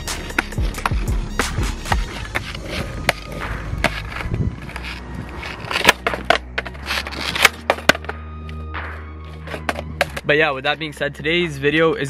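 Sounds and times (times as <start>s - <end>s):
skateboard wheels rolling on asphalt: 0.0s - 8.2s, 8.8s - 10.3s
skateboard clacking on ground: 0.2s - 1.1s, 1.9s - 8.1s, 9.5s - 10.3s.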